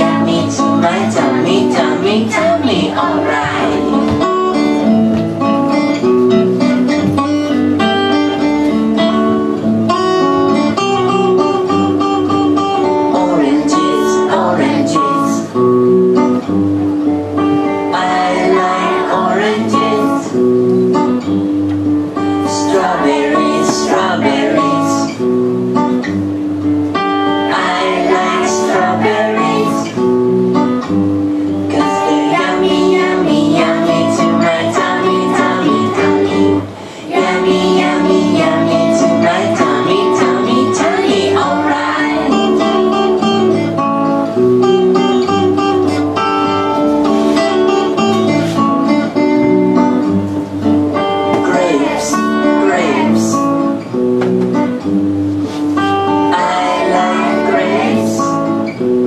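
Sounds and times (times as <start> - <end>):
person singing: 0.0 - 4.1, 12.9 - 15.6, 17.9 - 20.4, 22.4 - 25.2, 27.5 - 30.0, 31.7 - 43.4, 51.3 - 53.5, 56.1 - 58.4
guitar playing: 0.0 - 59.0.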